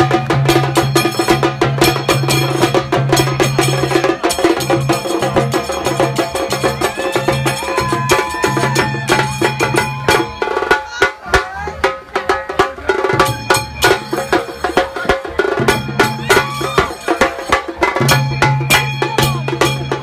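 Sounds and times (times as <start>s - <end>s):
drums beaten with sticks: 0.0s - 20.0s
music with melody and bass: 0.0s - 20.0s.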